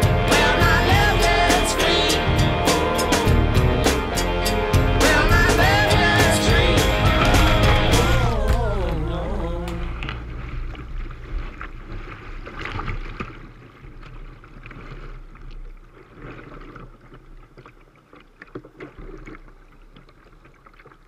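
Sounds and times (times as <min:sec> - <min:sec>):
whitewater rushing: 0:00.0 - 0:10.4
water splashing against boat: 0:05.0 - 0:21.0.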